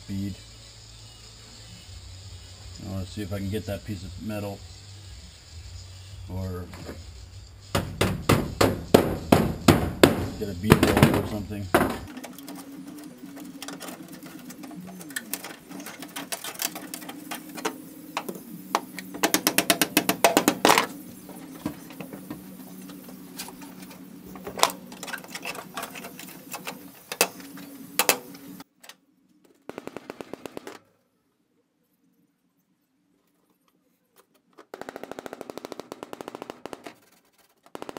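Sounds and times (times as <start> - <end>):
fast regular clicks: 7.8 - 21.0, 29.7 - 30.8, 34.6 - 37.9.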